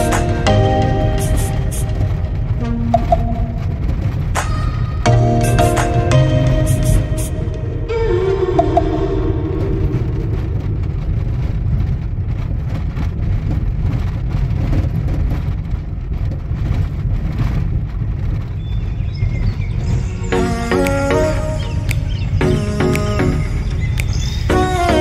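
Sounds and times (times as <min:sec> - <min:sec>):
music track: 0:00.0 - 0:10.3, 0:19.9 - 0:25.0
tyres and engine rumble: 0:00.0 - 0:25.0.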